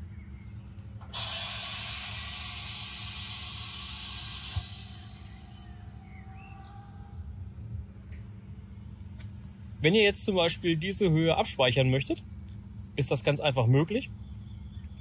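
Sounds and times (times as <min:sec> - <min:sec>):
valve click: 0:01.0 - 0:05.3
air suspension hissing: 0:01.0 - 0:06.2.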